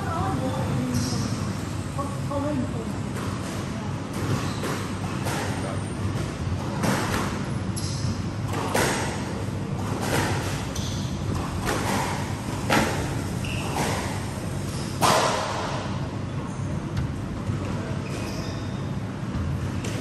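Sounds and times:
steady hall hum: 0.0s - 20.0s
shoe squeaks: 0.8s - 1.4s, 4.2s - 6.1s, 7.4s - 8.3s, 10.6s - 12.0s, 13.3s - 15.0s, 17.9s - 19.0s
squash ball hits: 4.1s - 7.4s, 8.5s - 14.2s, 15.0s - 16.0s.

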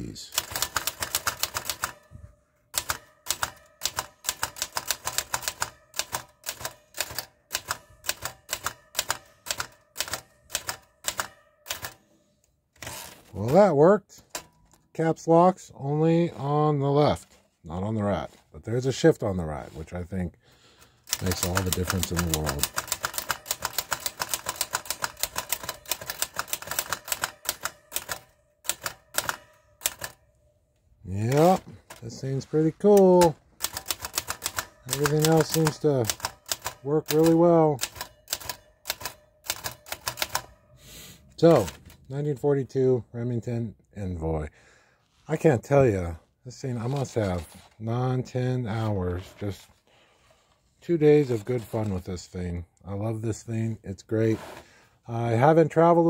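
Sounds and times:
typewriter keys clacking: 0.3s - 2.1s, 2.7s - 12.0s, 21.1s - 30.2s, 31.2s - 40.6s, 41.4s - 42.0s.

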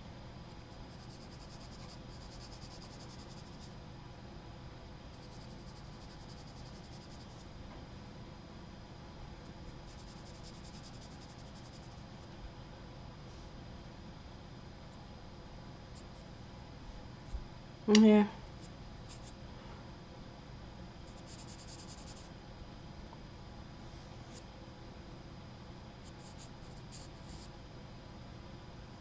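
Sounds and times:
faint low hum: 0.0s - 29.0s
charcoal pencil scratching on paper: 0.9s - 3.7s, 5.1s - 7.5s, 9.7s - 12.0s, 21.1s - 22.3s, 26.1s - 27.5s.

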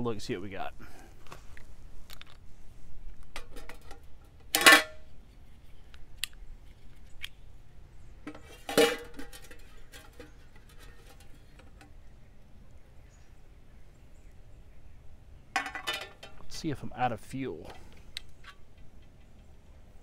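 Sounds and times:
metal cookware clanking: 8.3s - 11.4s, 15.6s - 16.5s.

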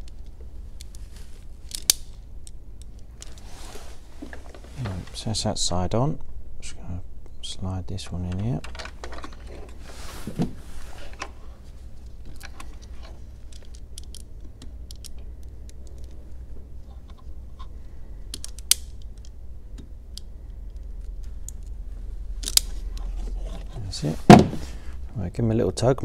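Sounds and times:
crimping pliers clicking and creaking: 1.6s - 3.4s, 12.1s - 16.2s, 18.3s - 21.8s, 22.4s - 23.8s
handling clicks: 12.2s - 16.2s, 18.3s - 21.8s.

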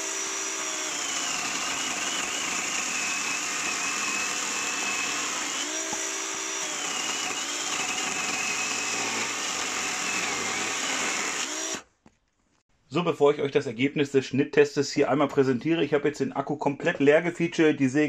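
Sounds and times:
electric chainsaw cutting log: 0.0s - 11.9s.

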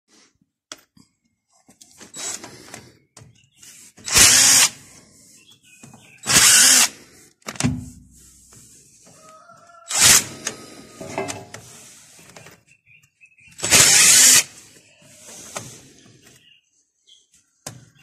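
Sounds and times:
impact driver running: 4.0s - 4.8s, 6.2s - 7.0s, 9.9s - 10.4s, 13.6s - 14.5s.

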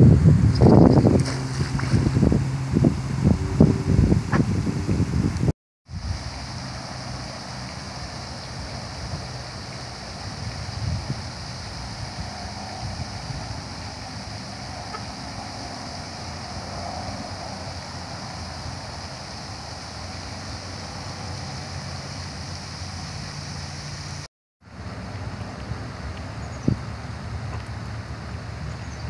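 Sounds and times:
wind rumbling on microphone: 0.0s - 29.0s
fountain water spraying: 5.9s - 28.7s.

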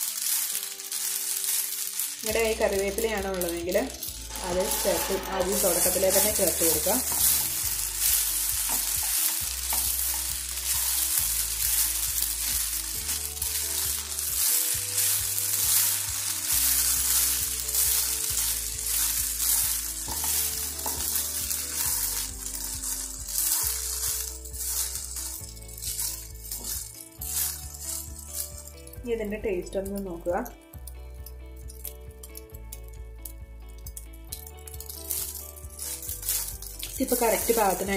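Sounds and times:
food sizzling in a pan: 0.0s - 29.2s, 30.0s - 37.9s
soft background music: 0.0s - 37.9s
spatula scraping a pan: 4.0s - 28.7s.

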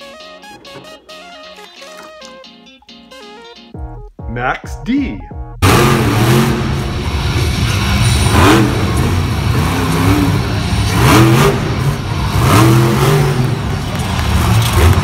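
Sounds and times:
monster truck engine revving: 5.6s - 15.0s.

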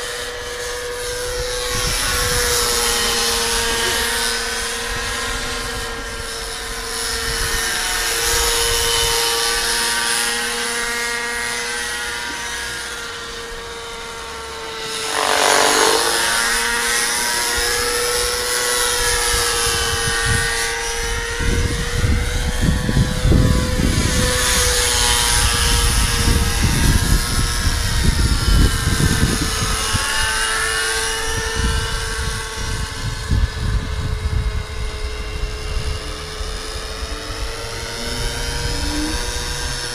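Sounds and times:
model helicopter whine: 0.0s - 39.9s
low gusty rumble: 31.2s - 39.9s.

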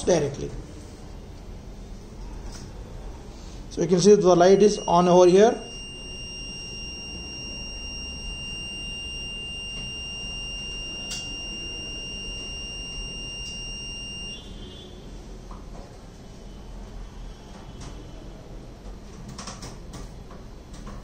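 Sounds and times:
high-pitched buzzer tone: 4.4s - 14.8s.

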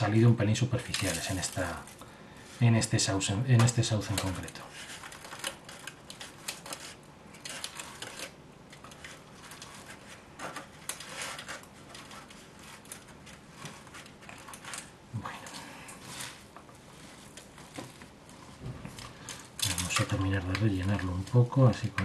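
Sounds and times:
fingers working potting soil: 0.0s - 22.0s.

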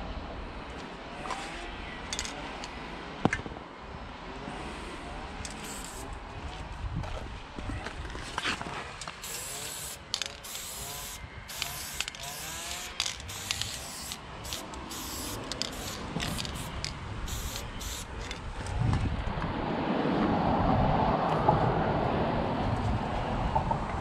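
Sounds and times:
spray can hissing bursts: 5.5s - 6.0s, 9.2s - 18.2s
low rushing noise: 9.3s - 24.0s.

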